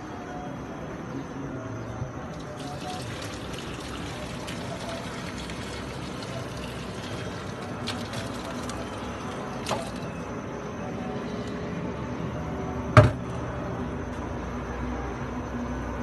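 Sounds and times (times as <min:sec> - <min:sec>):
cloth wringing against steel bowl: 0:02.4 - 0:10.3.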